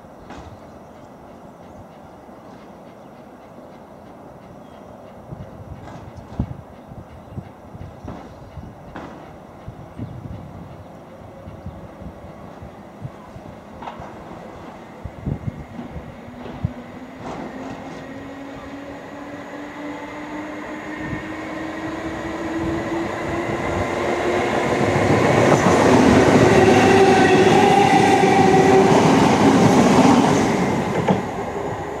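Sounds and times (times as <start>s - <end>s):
electric train whine: 9.6s - 32.0s.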